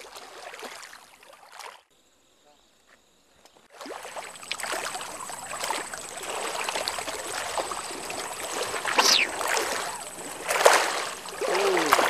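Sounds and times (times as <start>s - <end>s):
small fish splashing: 3.8s - 12.0s.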